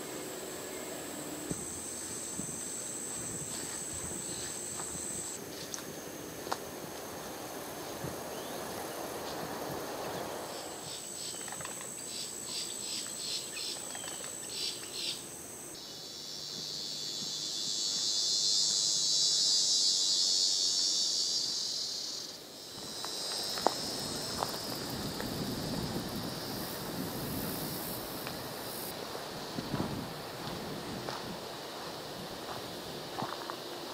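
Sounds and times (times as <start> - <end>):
insect pulsing trill: 0.0 - 6.4, 9.8 - 29.5
dense high insect buzz: 0.0 - 33.9.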